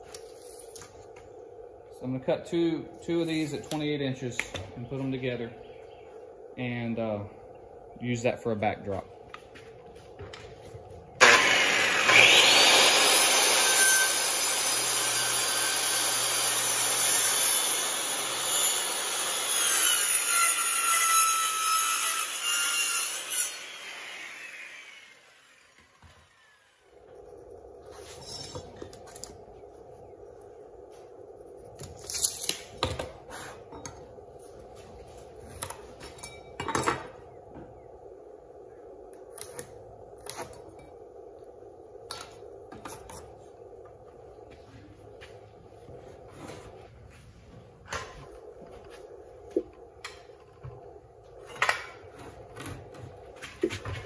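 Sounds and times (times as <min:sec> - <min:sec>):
steady low hum: 0:00.0 - 0:12.1, 0:25.0 - 0:54.0.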